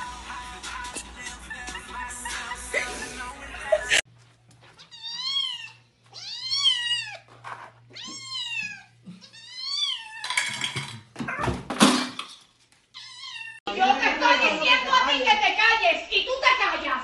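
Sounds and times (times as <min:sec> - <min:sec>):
cat meowing: 0:04.8 - 0:07.3, 0:07.9 - 0:10.3, 0:12.9 - 0:13.6.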